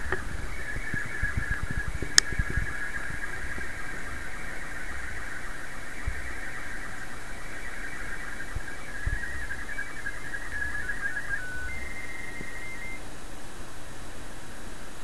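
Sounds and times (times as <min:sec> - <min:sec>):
steady radio hiss: 0:00.0 - 0:15.0
high-pitched warbling radio signal: 0:00.3 - 0:13.0.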